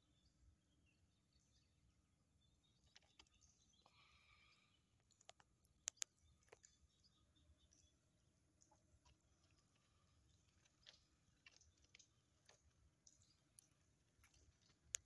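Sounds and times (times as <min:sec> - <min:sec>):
faint clicks: 0:05.1 - 0:06.8, 0:08.6 - 0:15.0
sharp clicks: 0:05.2 - 0:06.1.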